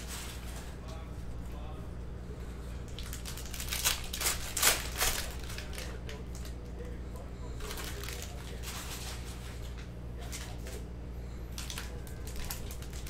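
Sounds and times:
foil wrappers crinkling: 0.0 - 0.9, 2.9 - 7.0, 7.6 - 10.8, 11.5 - 13.0.

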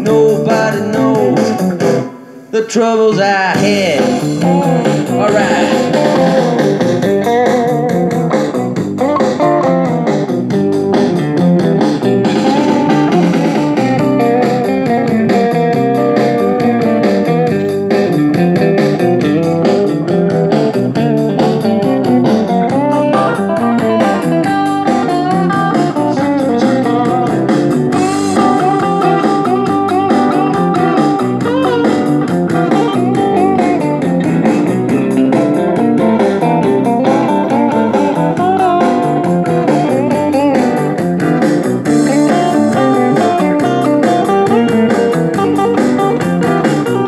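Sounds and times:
bass and steady beat: 0.0 - 2.2, 3.6 - 47.0
electric guitar lead lines: 0.0 - 47.0.

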